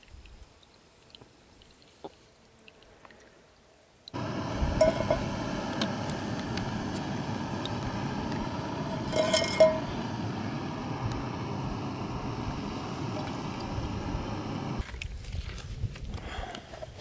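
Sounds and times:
wind noise on microphone: 0:04.2 - 0:17.0
metal camp pot clinking: 0:04.7 - 0:10.3.

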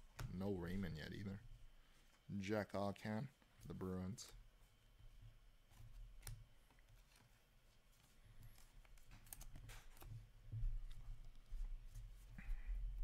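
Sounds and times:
steady low hum: 0:00.0 - 0:13.0
cards clicking and rustling: 0:08.0 - 0:11.5.

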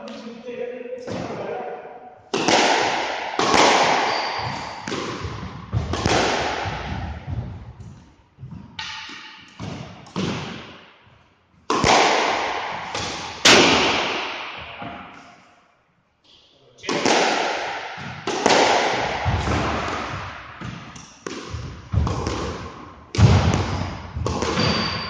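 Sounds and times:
squash ball hits echoing: 0:02.3 - 0:11.0, 0:11.7 - 0:15.4, 0:16.8 - 0:25.0.

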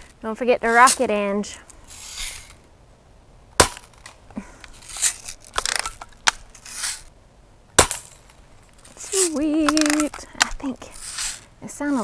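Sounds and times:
gun lever rasping: 0:04.0 - 0:07.1.

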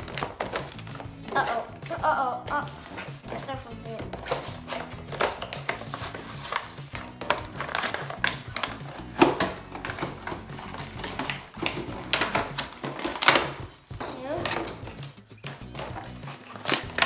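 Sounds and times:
background music: 0:00.0 - 0:17.0
plastic packaging crinkling: 0:02.8 - 0:13.6, 0:15.7 - 0:17.0.

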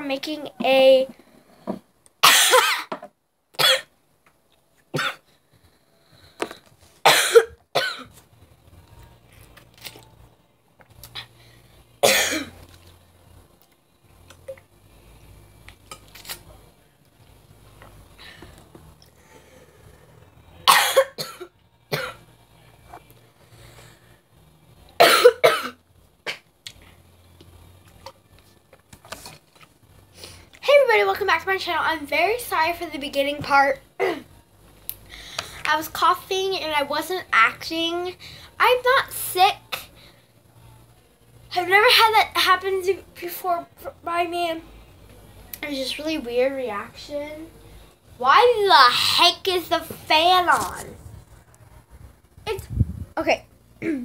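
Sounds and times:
girl coughing hard: 0:02.2 - 0:03.0, 0:03.6 - 0:03.9, 0:04.9 - 0:05.3, 0:07.0 - 0:08.2, 0:12.0 - 0:12.6, 0:20.6 - 0:22.2, 0:25.0 - 0:26.4, 0:34.0 - 0:34.3, 0:53.8 - 0:54.0.

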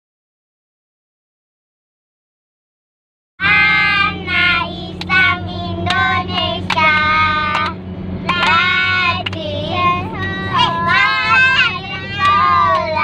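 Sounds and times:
low car hum: 0:03.4 - 0:13.0
young children singing: 0:03.4 - 0:13.0.

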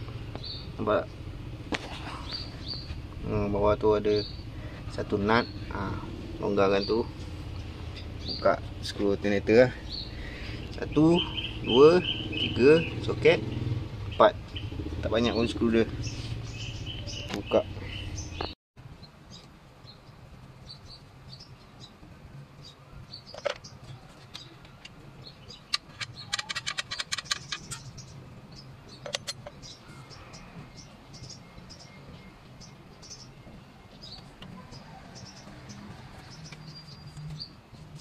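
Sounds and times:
birds chirping: 0:00.0 - 0:38.0
socket ratchet clicking: 0:25.7 - 0:27.9.

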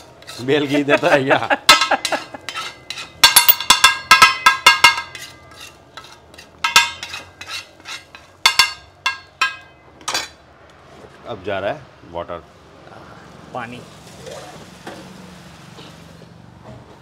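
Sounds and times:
metal spatula clanging on pan: 0:00.0 - 0:10.4.

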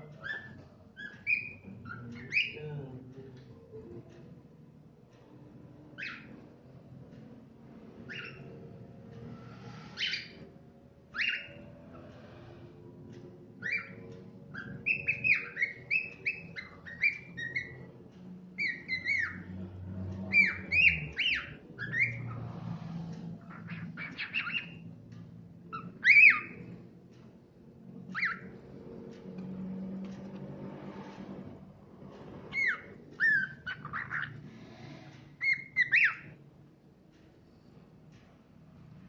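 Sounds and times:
cockatiel whistling: 0:00.2 - 0:02.6, 0:06.0 - 0:06.3, 0:08.1 - 0:08.5, 0:10.0 - 0:10.4, 0:11.1 - 0:11.7, 0:13.6 - 0:17.8, 0:18.6 - 0:19.5, 0:20.3 - 0:22.4, 0:23.6 - 0:24.8, 0:25.7 - 0:26.6, 0:28.1 - 0:28.5, 0:32.5 - 0:34.3, 0:35.4 - 0:36.3.

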